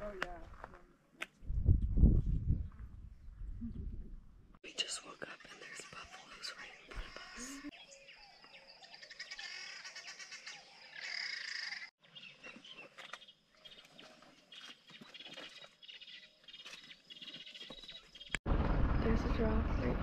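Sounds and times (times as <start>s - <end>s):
birds chirping and calling: 4.7s - 18.4s.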